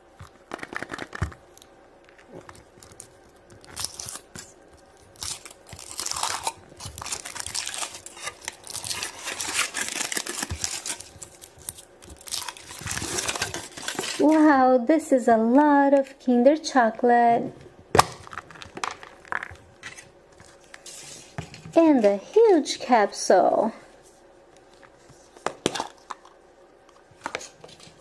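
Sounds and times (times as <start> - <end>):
foil wrapper crinkling and tearing: 0.3 - 14.4.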